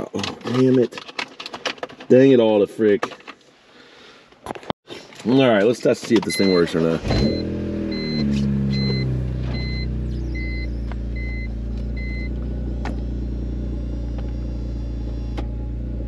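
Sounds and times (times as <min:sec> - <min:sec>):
two-tone warning chime: 0:07.3 - 0:12.3
convertible top motor humming: 0:07.3 - 0:16.0.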